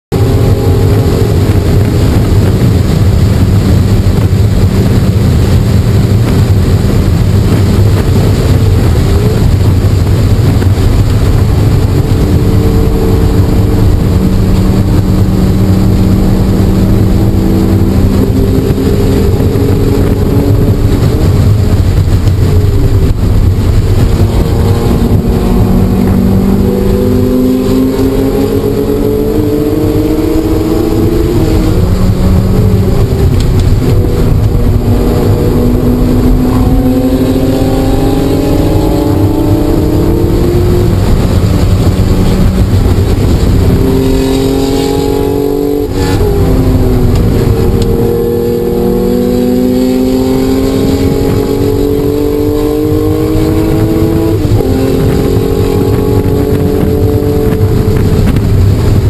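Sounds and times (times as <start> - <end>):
car engine under hard driving: 0.0 - 59.0.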